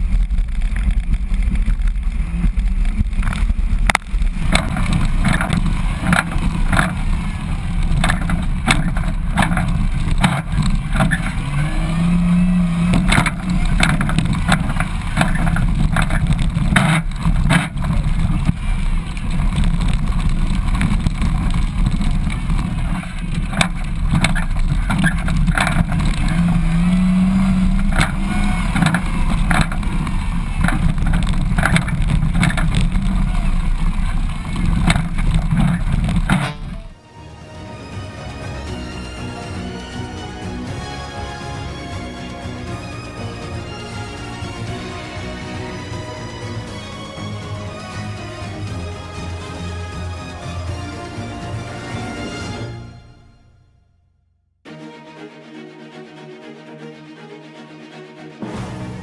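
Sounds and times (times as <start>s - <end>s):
gravel clicks and knocks: 0.0s - 37.0s
car engine revving: 0.0s - 52.6s.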